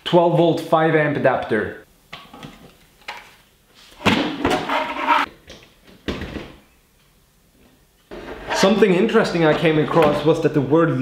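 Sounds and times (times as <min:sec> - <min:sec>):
clattering and rubbing: 0:03.8 - 0:05.3, 0:08.1 - 0:10.2.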